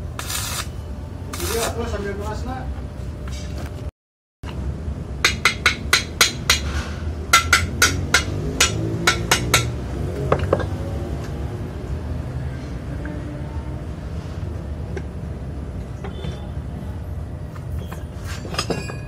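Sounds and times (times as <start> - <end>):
hammer striking steel: 5.2 - 10.8.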